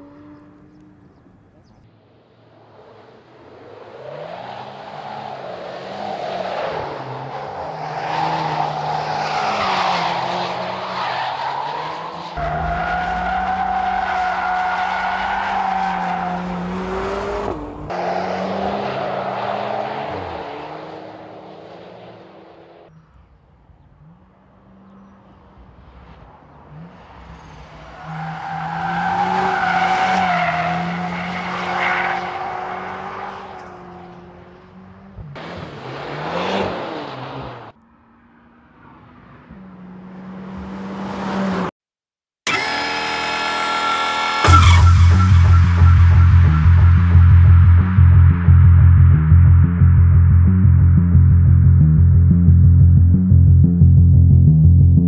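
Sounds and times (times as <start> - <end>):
car engines revving: 0.0 - 41.7, 42.5 - 55.0
tyres skidding: 4.0 - 21.9, 23.9 - 41.7.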